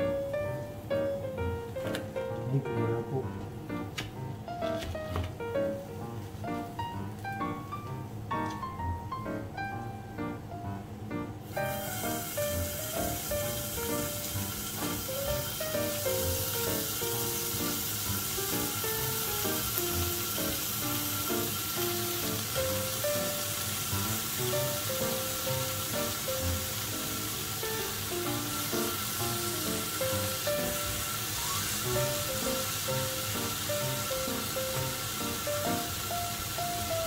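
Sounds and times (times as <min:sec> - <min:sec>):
light background music: 0:00.0 - 0:37.0
meat sizzling on grill plate: 0:11.5 - 0:37.0.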